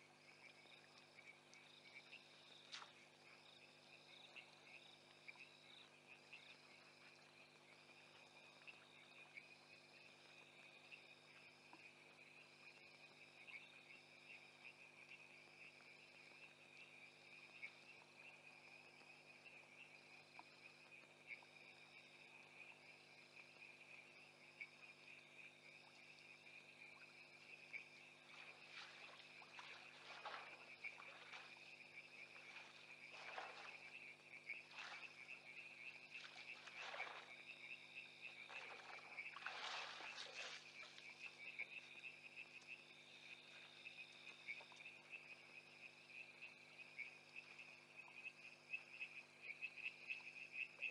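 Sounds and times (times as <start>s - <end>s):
insects trilling: 0.2s - 50.9s
frogs calling: 13.4s - 50.9s.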